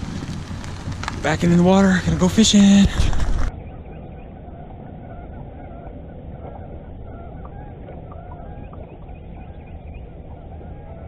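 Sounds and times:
steady low rumble: 0.0s - 11.0s
geese honking: 3.8s - 11.0s.

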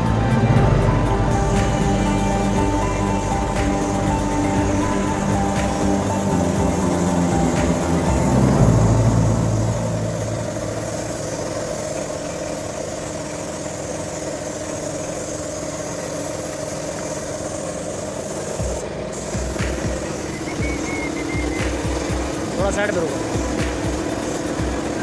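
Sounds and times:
low rumble: 0.0s - 11.8s
paint spray gun hissing: 0.0s - 25.0s.

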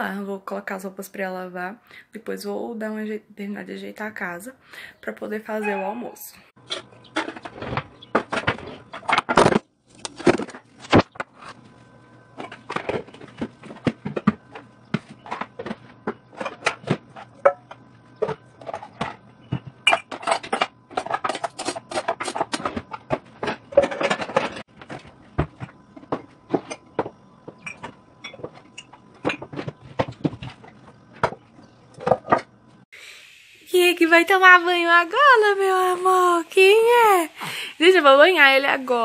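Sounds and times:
cookware clattering and clinking: 15.2s - 24.6s, 26.5s - 31.4s.

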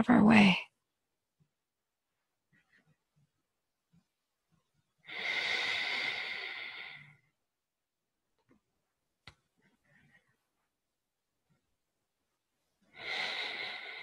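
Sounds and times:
person breathing out: 13.0s - 14.0s.

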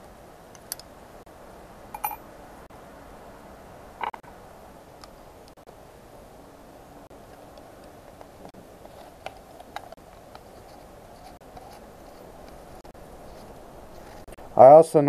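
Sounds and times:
faint background noise: 0.0s - 15.0s
metal parts clinking: 2.0s - 2.2s.

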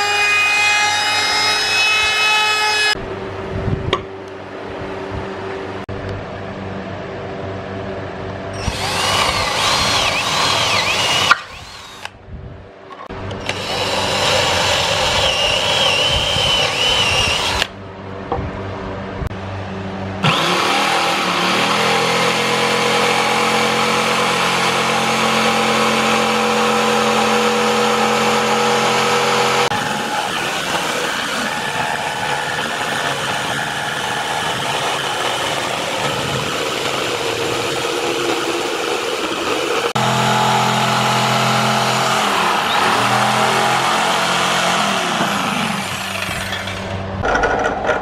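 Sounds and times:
electric drill boring through wood: 0.0s - 3.0s, 8.6s - 12.2s, 13.3s - 17.8s, 20.2s - 46.8s
jigsaw motor running: 8.6s - 12.1s, 13.4s - 17.7s, 20.2s - 46.4s.

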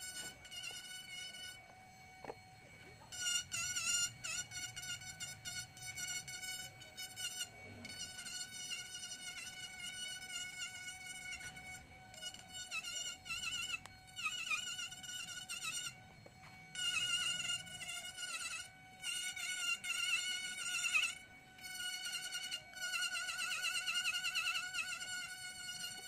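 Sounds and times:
rotary tool whining cutting wood: 0.0s - 26.0s.

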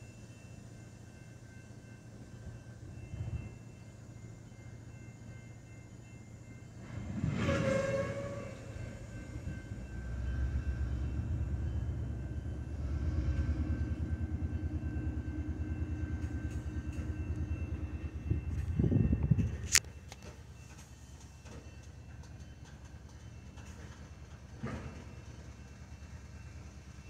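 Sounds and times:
freight train rumbling: 0.0s - 27.0s
train horn blast: 7.1s - 9.0s.

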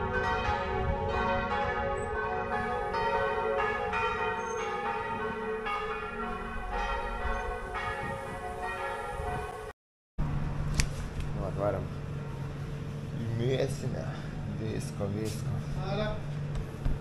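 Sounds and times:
church bells ringing: 0.0s - 9.7s.

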